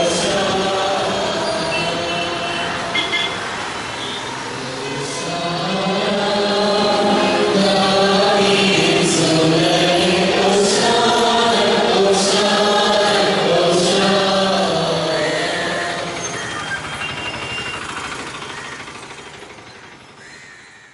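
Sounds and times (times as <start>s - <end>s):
choir singing a hymn: 0.0s - 3.4s, 4.3s - 16.4s.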